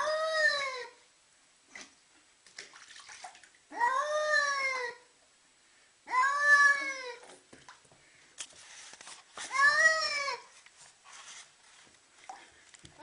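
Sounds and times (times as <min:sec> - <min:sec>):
cat yowling: 0:00.0 - 0:01.0, 0:03.7 - 0:05.0, 0:06.1 - 0:07.2, 0:09.5 - 0:10.4
water and handling noises: 0:01.7 - 0:03.6, 0:10.4 - 0:13.0.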